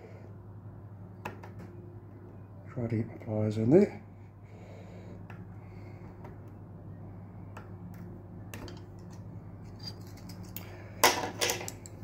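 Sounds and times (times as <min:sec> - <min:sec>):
pliers clicking and scraping on metal: 0:08.6 - 0:12.0.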